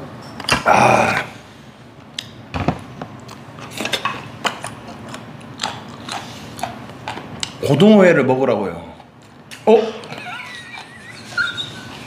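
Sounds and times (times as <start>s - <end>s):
chewing: 4.5s - 7.6s.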